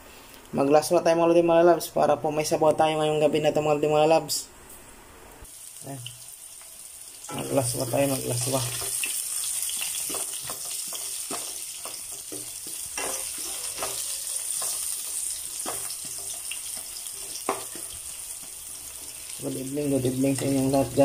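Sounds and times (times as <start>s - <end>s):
onions sizzling in oil: 5.4s - 21.0s
spatula scraping and tapping pan: 8.4s - 19.4s.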